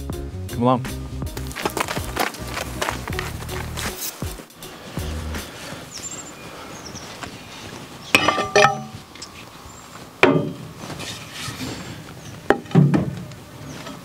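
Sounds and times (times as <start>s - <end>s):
metal clanks on workbench: 8.2s - 9.0s.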